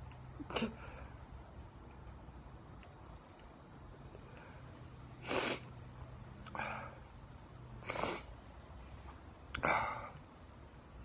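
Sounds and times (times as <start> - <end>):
soft breath: 4.2 - 5.8
man sniffling while crying: 5.2 - 5.7, 7.8 - 8.4.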